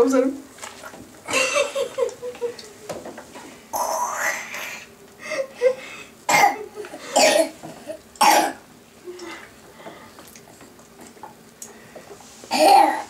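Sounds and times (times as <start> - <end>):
person coughing: 6.3 - 7.6, 8.2 - 8.6, 12.5 - 13.0.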